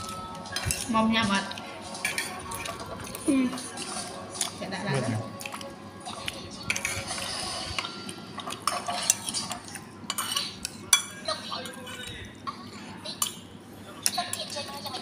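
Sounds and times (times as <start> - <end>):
spoon clinking on ceramic plates: 2.0 - 2.7, 7.8 - 12.1.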